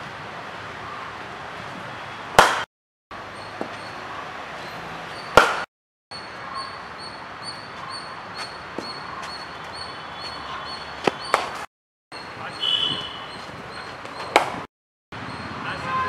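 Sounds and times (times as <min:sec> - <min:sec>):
steady background noise: 0:00.0 - 0:16.0
cricket bat striking ball: 0:02.4 - 0:02.7, 0:05.2 - 0:05.7, 0:10.2 - 0:11.7, 0:13.9 - 0:14.7.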